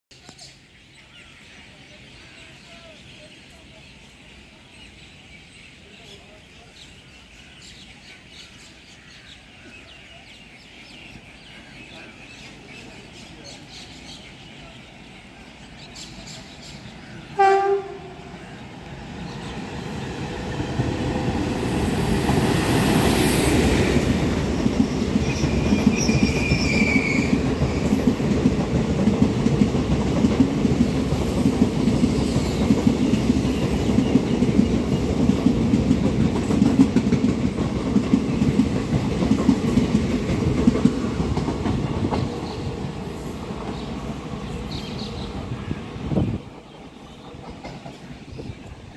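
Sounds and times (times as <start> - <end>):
train passing at speed: 1.7 - 48.9
train horn blast: 17.3 - 18.4.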